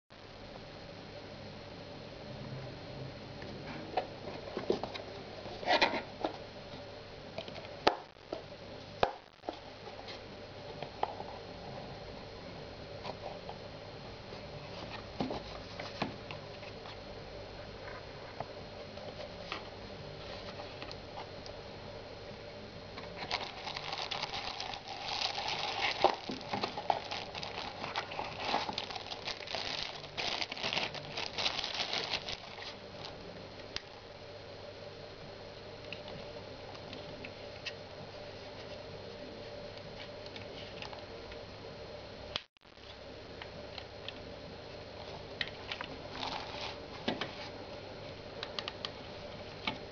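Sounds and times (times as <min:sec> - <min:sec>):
plastic bag crinkling: 0:23.2 - 0:33.2.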